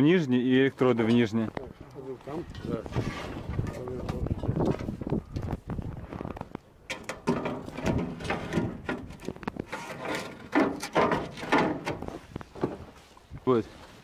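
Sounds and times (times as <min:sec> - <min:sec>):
drawer or door moving: 0:06.9 - 0:12.8
equipment knocking and clattering: 0:06.9 - 0:12.8.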